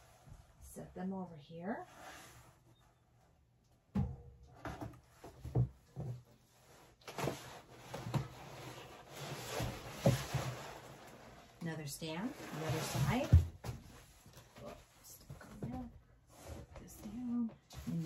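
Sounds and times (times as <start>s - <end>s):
cardboard scraping and rustling: 4.6s - 14.9s.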